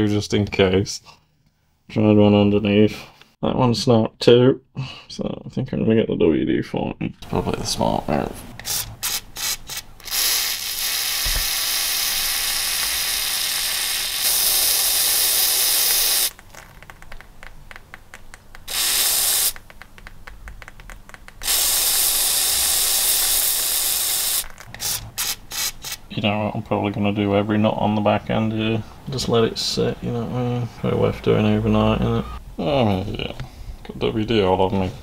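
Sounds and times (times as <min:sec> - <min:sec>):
aerosol can spraying: 0:08.6 - 0:16.4, 0:18.6 - 0:20.1, 0:21.4 - 0:26.1.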